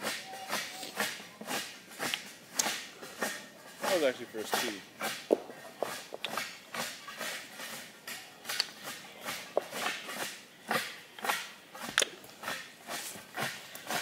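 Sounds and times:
footsteps on forest floor: 0.6 - 7.8.

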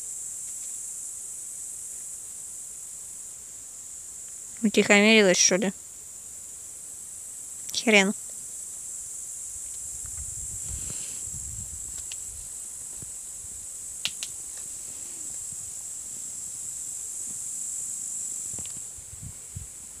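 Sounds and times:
insects chirring: 0.0 - 20.0
sharp clicks: 14.0 - 14.7.

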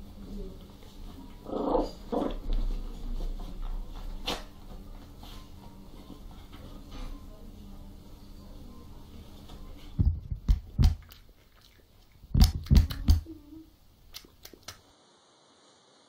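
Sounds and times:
heavy thumps and knocks: 10.0 - 11.1, 12.3 - 13.3.

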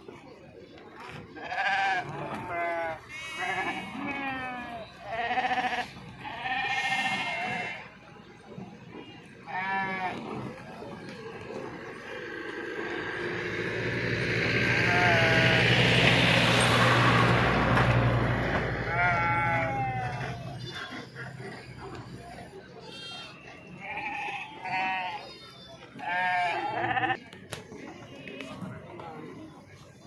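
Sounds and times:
sheep bleating: 1.4 - 7.9, 9.4 - 10.2, 14.8 - 15.6, 18.8 - 21.0, 22.8 - 27.2
vehicle running: 10.4 - 22.6.

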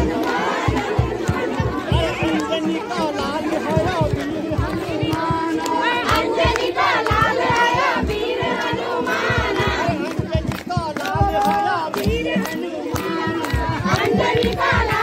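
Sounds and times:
low repeating thuds: 0.0 - 10.6
crowd shouting and chanting: 0.0 - 15.0.

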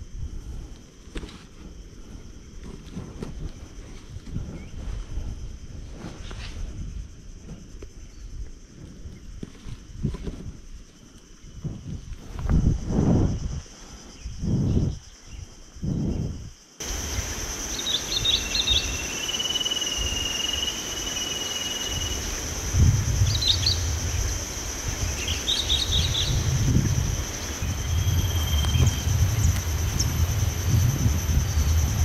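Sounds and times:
high-pitched insect drone: 0.0 - 32.0
wind rumble on microphone: 0.0 - 32.0
bird chirps: 17.6 - 22.3, 23.2 - 24.2, 25.0 - 26.6, 27.3 - 30.1
whistled bird note: 17.7 - 22.2, 27.6 - 30.1.

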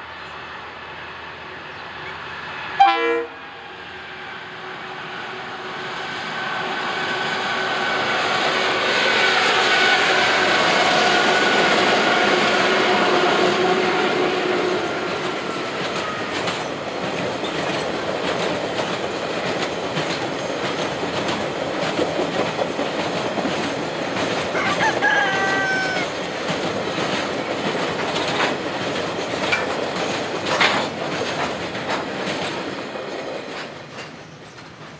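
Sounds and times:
diesel locomotive engine whine: 0.0 - 34.9
train wheels clacking over rail joints: 8.1 - 34.9
rooster crowing: 24.5 - 26.2.

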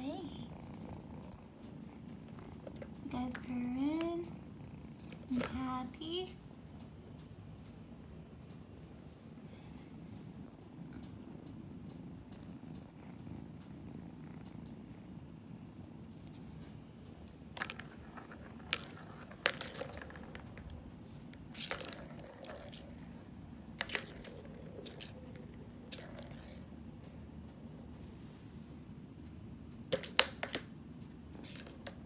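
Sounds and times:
kittens purring: 0.0 - 29.9, 30.8 - 32.0
plastic balls clacking in cat toy: 17.5 - 20.8, 21.5 - 23.0, 23.8 - 26.6, 29.9 - 30.7.

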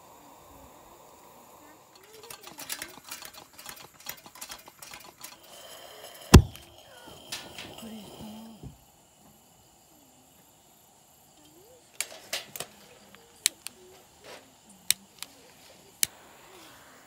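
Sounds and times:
metal lantern clicks: 2.0 - 8.2, 12.0 - 13.8.

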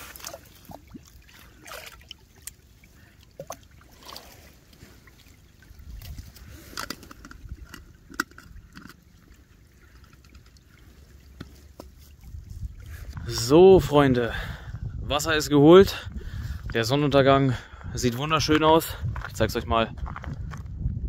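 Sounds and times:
water gurgling into bottle: 0.0 - 14.1.

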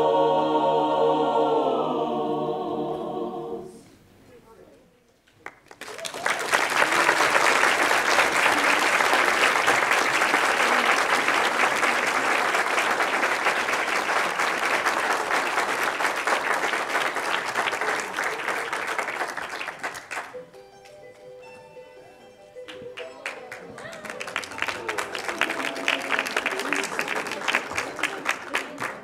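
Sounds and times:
audience applauding: 5.4 - 20.4, 22.7 - 29.0.

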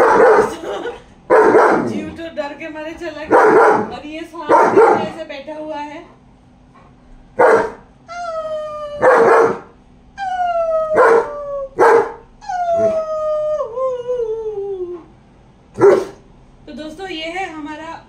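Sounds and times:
dog barking: 0.0 - 0.6, 1.3 - 2.1, 3.3 - 5.2, 7.4 - 7.8, 9.0 - 9.7, 11.0 - 12.2, 15.8 - 16.2
dog howling: 7.4 - 15.1.

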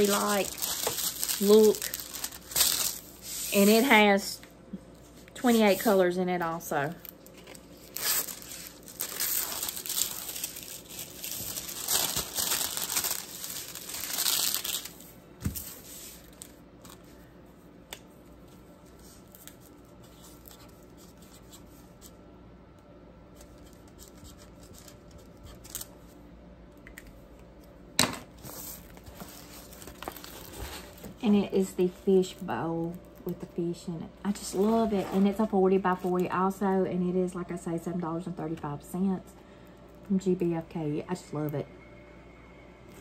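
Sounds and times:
plastic film crinkling: 0.0 - 4.3, 5.4 - 17.2, 18.8 - 22.1, 28.4 - 33.5.

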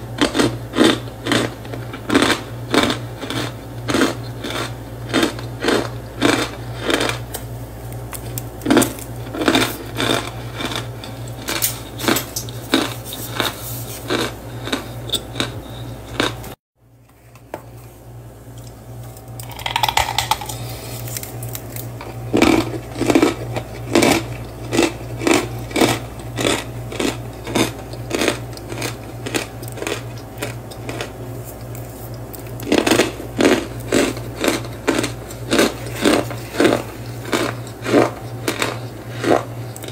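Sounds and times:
squeaky crunching of cornstarch: 8.6 - 16.4.

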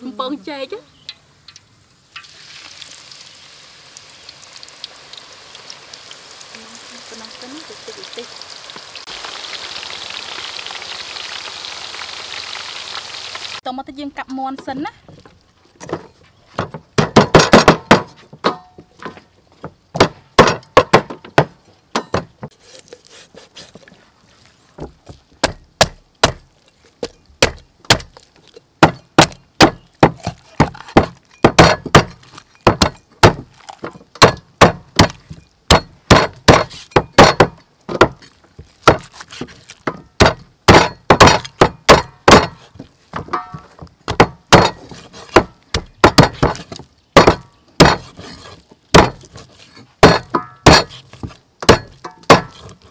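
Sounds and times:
cleaver thwacking on wooden block: 39.9 - 42.6, 49.0 - 49.3.

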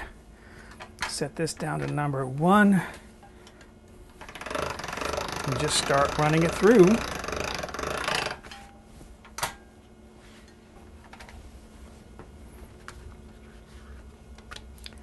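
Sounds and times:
faint steady hum: 0.0 - 15.0
pasta machine clicking: 4.2 - 8.4.

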